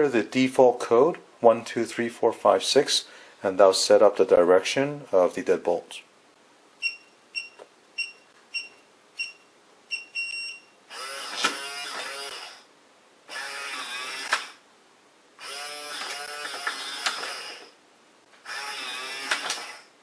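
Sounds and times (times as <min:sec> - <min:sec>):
keypad beeps: 0:06.8 - 0:10.7
lock motor whirring: 0:10.9 - 0:12.7, 0:13.3 - 0:14.6, 0:15.4 - 0:17.8, 0:18.4 - 0:19.9.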